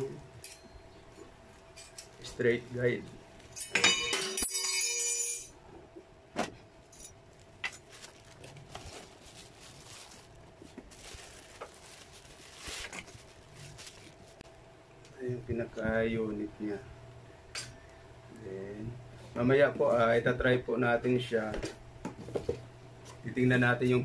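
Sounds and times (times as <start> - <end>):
metal parts clinking and jingling: 3.5 - 5.5, 6.9 - 8.0
plastic wrapping and cardboard rustling: 6.8 - 14.5.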